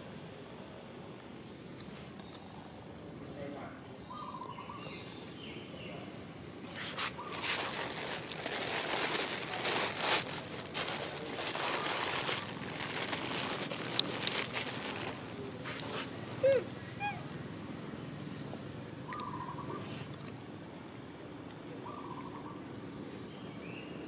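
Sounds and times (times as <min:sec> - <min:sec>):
crackling and rustling: 0:06.6 - 0:16.2.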